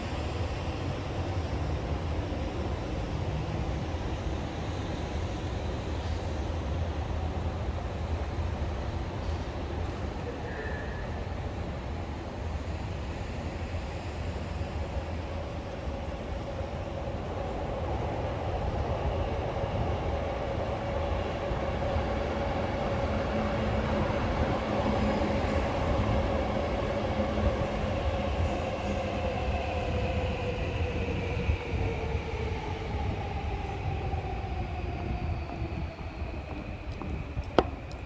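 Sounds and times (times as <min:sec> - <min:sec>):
train wheels rumbling on rails: 0:00.0 - 0:38.0.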